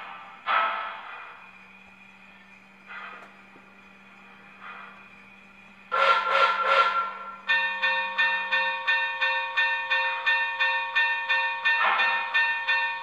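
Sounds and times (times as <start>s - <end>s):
faint steady hum: 0.0s - 11.7s
locomotive bell ringing: 0.0s - 13.0s.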